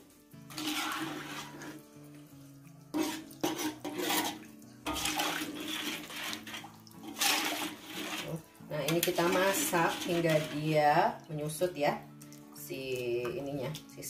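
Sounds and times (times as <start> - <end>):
faint background music: 0.0 - 14.0
liquid sloshing in wok: 0.5 - 10.8.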